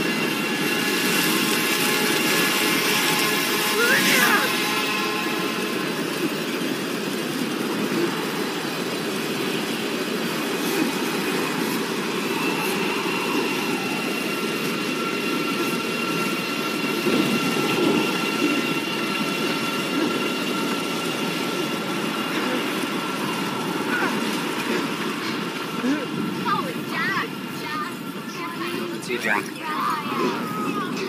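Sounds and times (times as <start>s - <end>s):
dense rushing storm-like noise: 0.0s - 31.0s.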